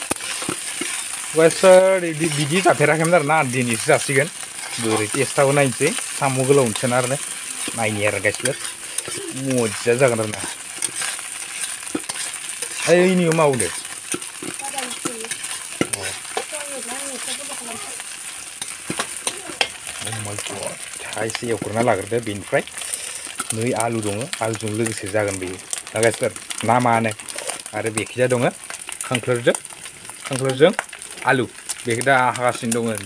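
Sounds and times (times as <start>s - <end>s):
spatula scraping and tapping wok: 0.0s - 31.0s
food sizzling in hot oil: 0.0s - 33.0s.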